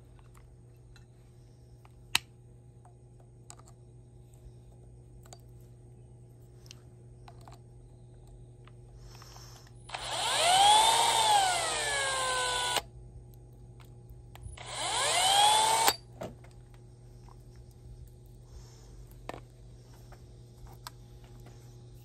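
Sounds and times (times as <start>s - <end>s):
cordless drill whining: 9.9s - 12.9s, 14.6s - 16.0s.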